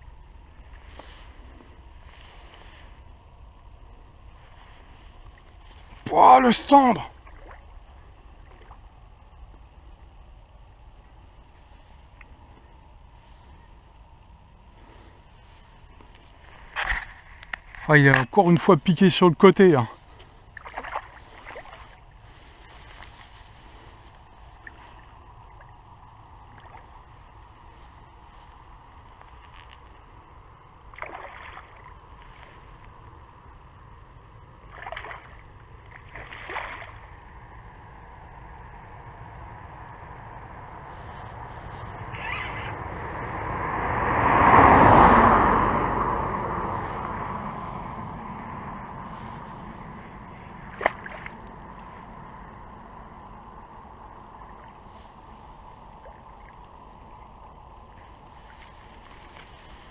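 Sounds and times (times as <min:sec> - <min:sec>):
faint hum: 0:00.0 - 0:59.9
low outdoor rumble: 0:00.0 - 0:59.9
rustle: 0:00.0 - 0:59.9
car driving past: 0:38.2 - 0:54.7.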